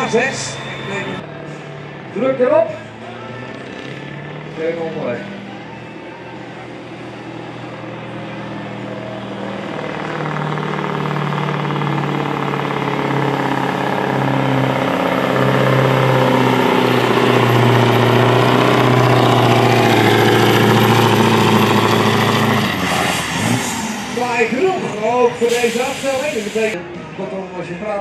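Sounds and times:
diesel truck engine under heavy load: 0:00.0 - 0:27.1.

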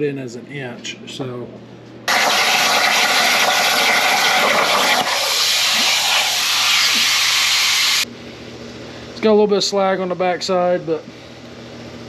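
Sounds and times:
plasma torch cutting metal: 0:02.1 - 0:08.0.

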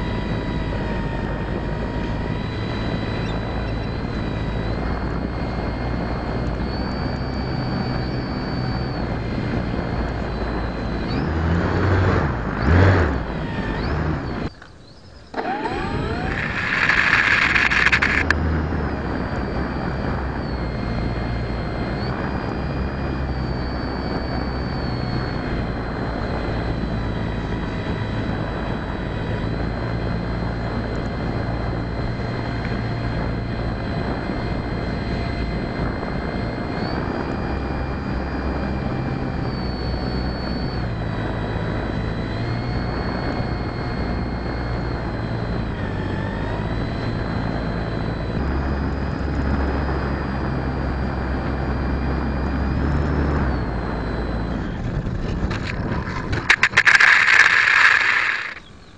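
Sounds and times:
model airplane motor whine: 0:00.0 - 0:58.9
wind rush: 0:54.6 - 0:58.8.

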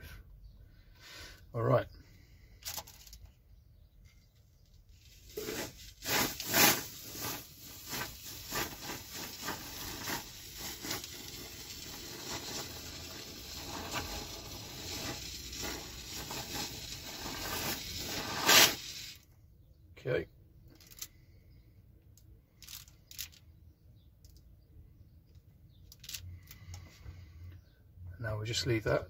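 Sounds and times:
aerosol foam hissing: 0:05.3 - 0:19.2.

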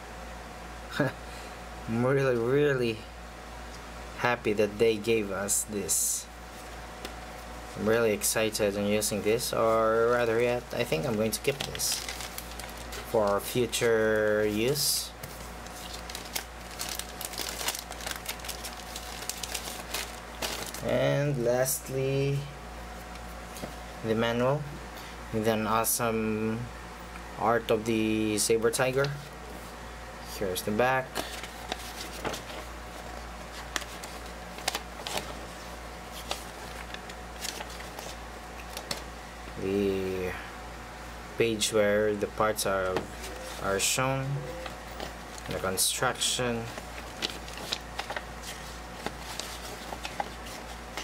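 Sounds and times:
steady low hum: 0:00.0 - 0:51.0
paper pages rustling: 0:09.0 - 0:20.9, 0:31.1 - 0:39.0, 0:42.8 - 0:43.8, 0:46.6 - 0:51.0
plastic bag crinkling: 0:09.0 - 0:20.9, 0:46.6 - 0:51.0.

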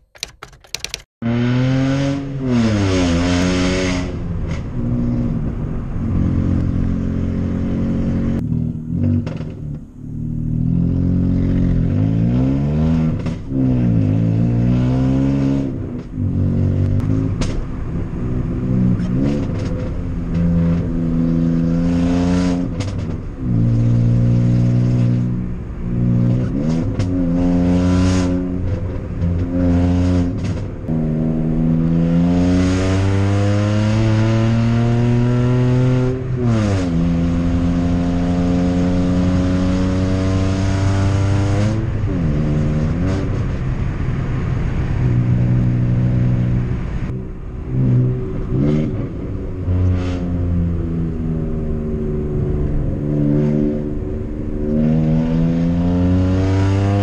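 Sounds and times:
car engine revving: 0:01.2 - 0:57.0
exhaust pops crackling: 0:08.4 - 0:09.9, 0:15.8 - 0:21.0, 0:22.6 - 0:23.7, 0:26.4 - 0:27.4.

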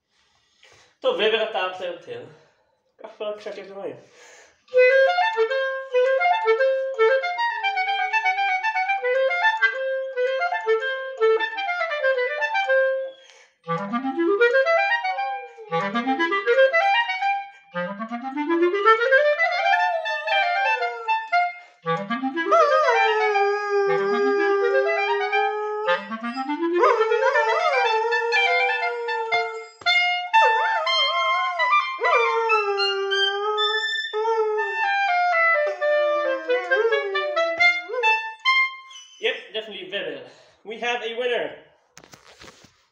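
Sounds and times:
clarinet playing: 0:04.7 - 0:39.5
dog howling: 0:14.8 - 0:15.9, 0:18.9 - 0:21.6, 0:22.4 - 0:38.2.

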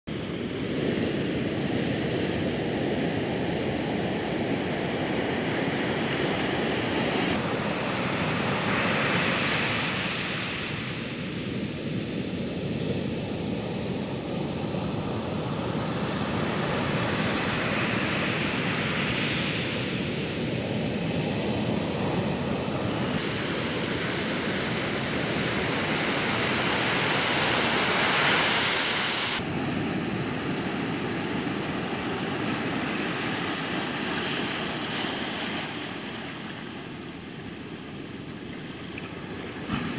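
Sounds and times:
waves breaking on beach: 0:00.1 - 0:39.9
wave crashing: 0:16.5 - 0:39.9.

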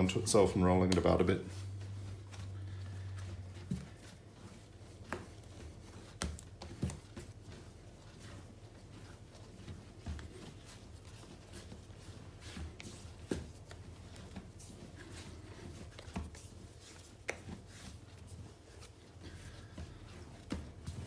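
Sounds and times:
hands kneading bread dough: 0:00.0 - 0:21.0.

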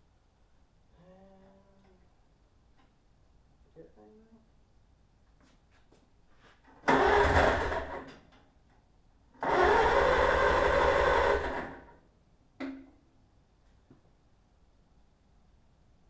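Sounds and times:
starter cranking engine: 0:06.8 - 0:08.1, 0:09.4 - 0:11.9.

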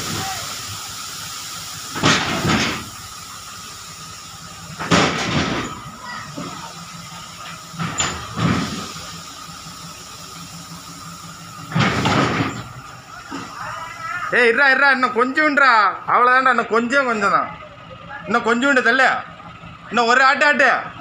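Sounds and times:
grain pouring off trailer: 0:00.0 - 0:14.6.

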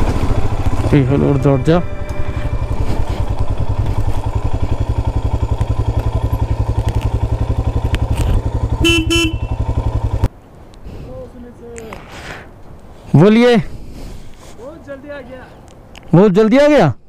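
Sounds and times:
motorcycle engine running slowly: 0:00.0 - 0:10.3
short two-part horn beep: 0:08.8 - 0:09.6.

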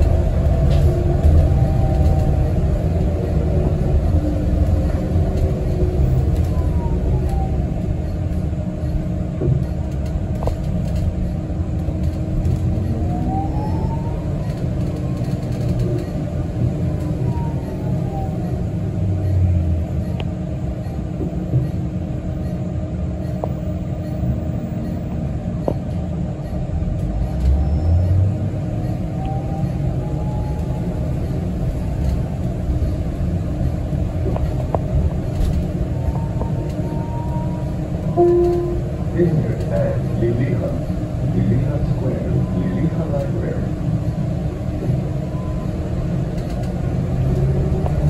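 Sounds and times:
bus engine and road rumble: 0:00.0 - 0:48.0
faint whine: 0:17.6 - 0:43.8.

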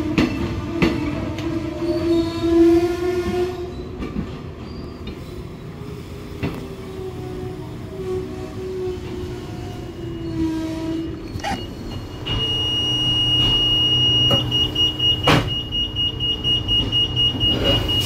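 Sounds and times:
train carriage low hum: 0:00.0 - 0:18.0
door warning beeper: 0:11.4 - 0:18.0.

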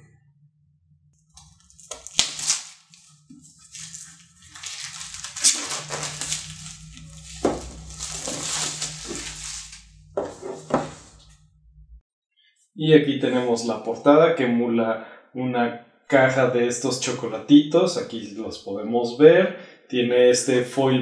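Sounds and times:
shrink wrap crinkling: 0:01.4 - 0:10.1.

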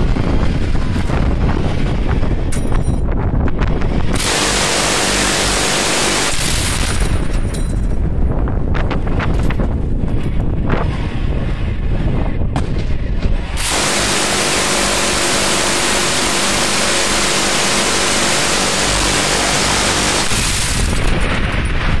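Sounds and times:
low rumble: 0:00.0 - 0:05.7, 0:06.4 - 0:22.0
minigun continuous burst: 0:03.9 - 0:07.4, 0:12.9 - 0:21.1
sharp cracks: 0:04.1 - 0:07.6, 0:12.6 - 0:21.5.

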